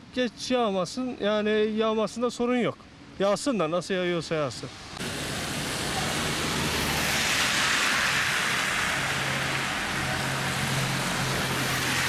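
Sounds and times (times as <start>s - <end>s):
tyres hissing on wet road: 4.6s - 12.0s
low engine hum: 5.0s - 12.0s.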